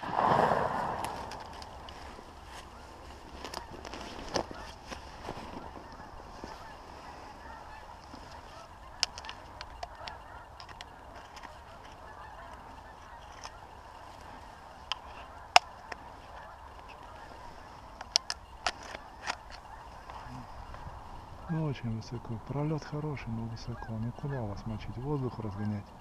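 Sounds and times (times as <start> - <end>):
distant geese honking: 0.0 - 26.0
sharp clicks: 8.8 - 13.6, 18.0 - 20.8.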